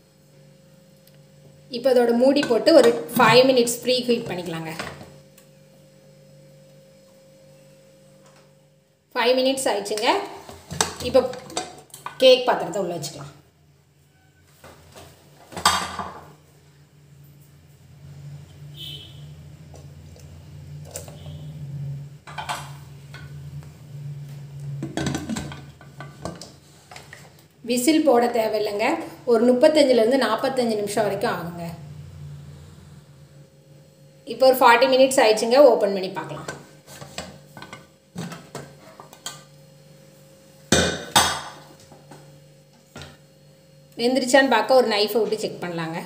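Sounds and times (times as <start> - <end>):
low hum: 16.6 - 26.6, 28.3 - 34.4.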